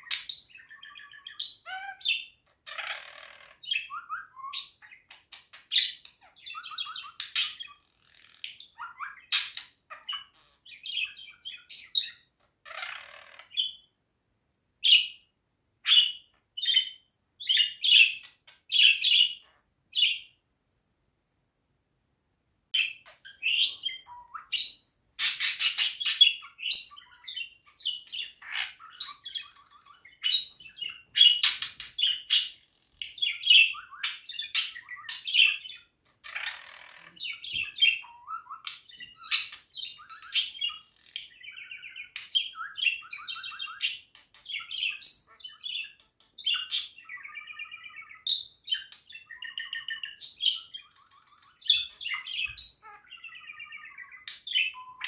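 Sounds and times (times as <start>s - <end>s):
budgerigar chirping: 0.0s - 13.9s, 15.8s - 20.4s, 22.8s - 55.0s
budgerigar chattering warble: 22.8s - 32.6s.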